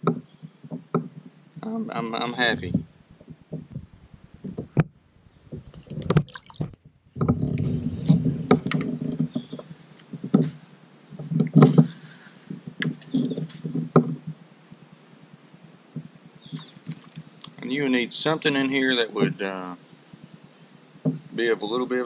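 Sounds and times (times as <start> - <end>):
water splashing: 5.4 - 9.7, 16.4 - 19.4
knocks on plastic kayak hull: 10.2 - 10.6.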